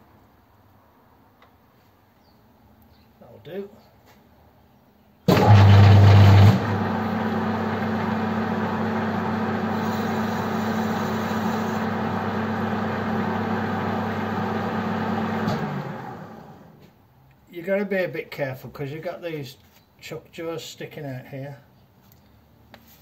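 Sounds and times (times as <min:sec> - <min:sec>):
lathe motor humming: 0:05.3 - 0:16.7
lathe spindle running: 0:05.3 - 0:16.7.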